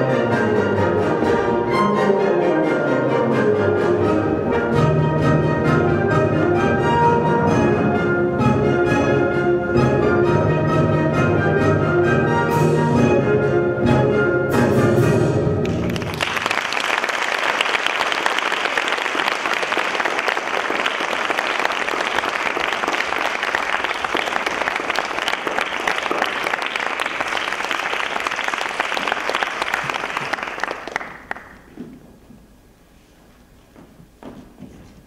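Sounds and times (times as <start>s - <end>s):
audience applauding: 15.6s - 31.8s.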